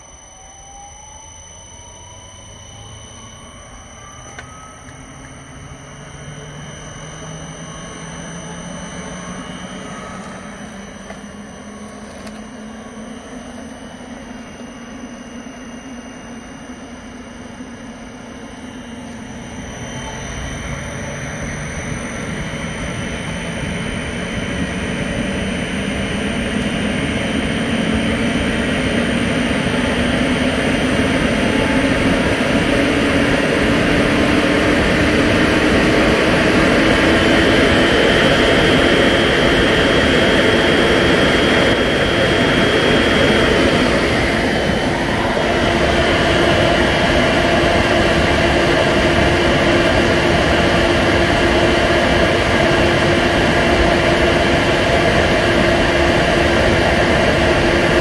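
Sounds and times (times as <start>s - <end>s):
fan air rushing: 0.0s - 58.0s
motor whine rising in pitch: 0.0s - 58.0s.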